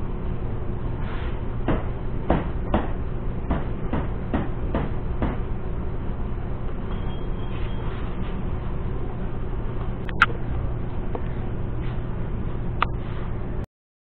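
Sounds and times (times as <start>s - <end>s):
low hum: 5.0s - 13.7s.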